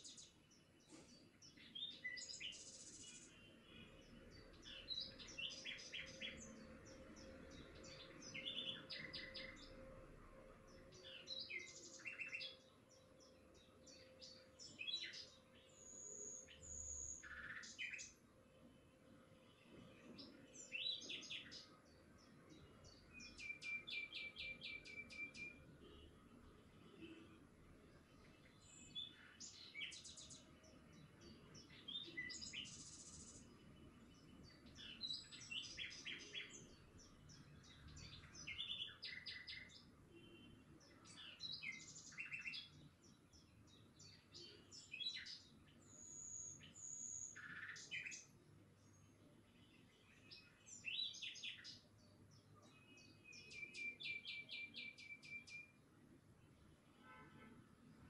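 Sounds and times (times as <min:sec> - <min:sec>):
small birds chirping: 0:00.0 - 0:10.0, 0:10.7 - 0:18.8, 0:19.4 - 0:58.0
bird trill: 0:53.1 - 0:55.8.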